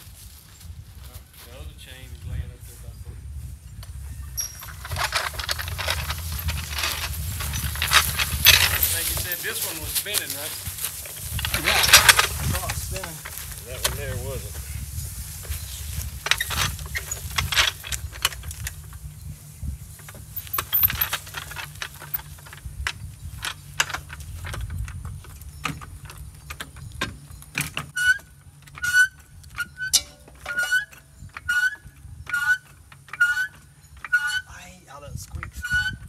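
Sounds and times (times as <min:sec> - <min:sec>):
short squeaks: 0:04.1 - 0:09.4, 0:26.8 - 0:34.6
metal clattering and knocks: 0:04.4 - 0:10.2, 0:10.8 - 0:13.4, 0:20.0 - 0:34.5.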